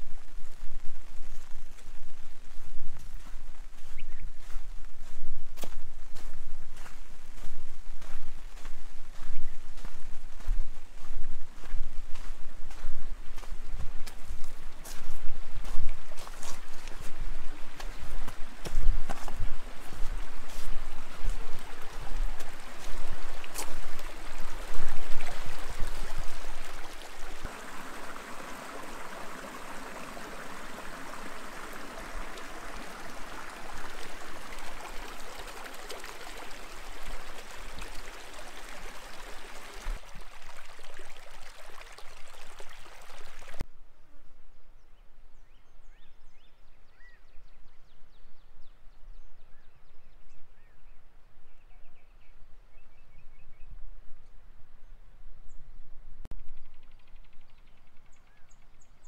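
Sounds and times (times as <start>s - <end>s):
faint bird chirps: 3.8s - 4.7s, 56.4s - 59.0s
stream flowing over rocks: 9.8s - 43.6s.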